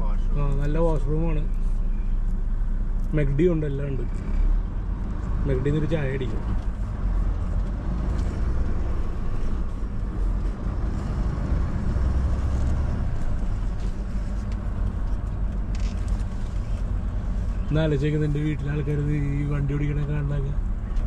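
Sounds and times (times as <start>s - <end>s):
truck engine rumble: 0.0s - 21.0s.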